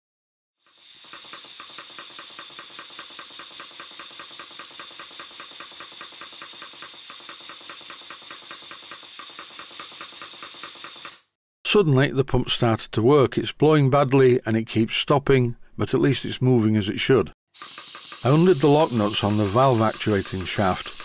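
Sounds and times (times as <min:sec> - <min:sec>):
compressed air hissing: 0:00.6 - 0:11.3, 0:17.6 - 0:21.0.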